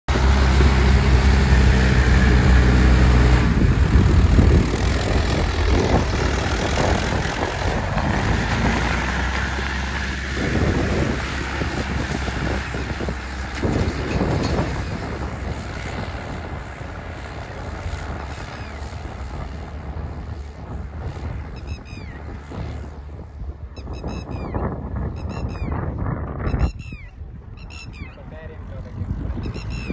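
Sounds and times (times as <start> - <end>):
tractor diesel engine: 0.1 - 23.7.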